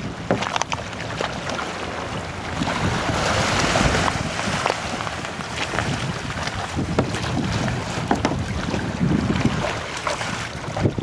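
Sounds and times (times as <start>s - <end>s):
water splashing around legs: 0.0s - 11.0s
wind rumbling on microphone: 0.0s - 11.0s
small waves washing over rocks: 2.6s - 11.0s.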